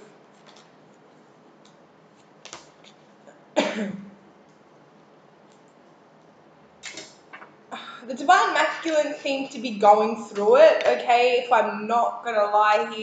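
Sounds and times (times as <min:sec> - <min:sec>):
woman coughing: 0:03.6 - 0:04.1.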